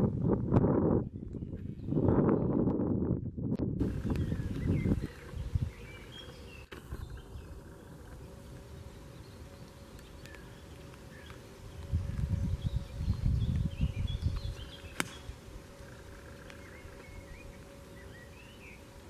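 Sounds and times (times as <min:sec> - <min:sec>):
wind buffeting microphone: 0:00.0 - 0:08.4, 0:11.1 - 0:17.8
faint outdoor ambience: 0:00.0 - 0:19.0.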